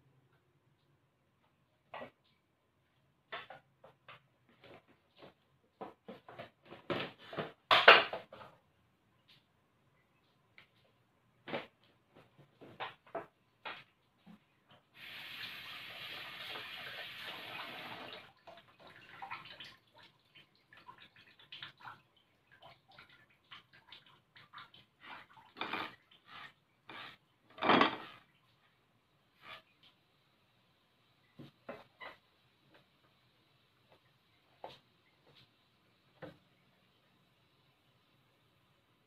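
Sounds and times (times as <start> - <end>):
water running: 14.2 - 30.2
pots and utensils clinking: 25.5 - 26.0, 26.9 - 28.2.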